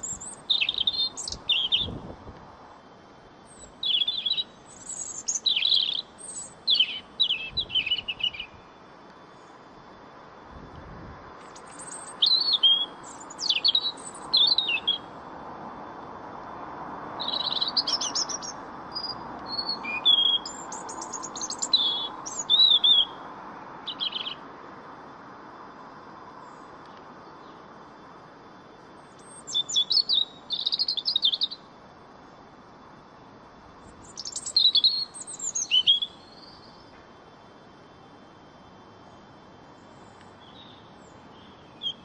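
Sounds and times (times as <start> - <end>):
robin singing warbles and trills: 0.0 - 2.2, 2.8 - 10.5, 11.3 - 15.3, 17.1 - 25.0, 25.8 - 27.8, 28.5 - 31.9, 33.0 - 37.0, 38.4 - 42.0.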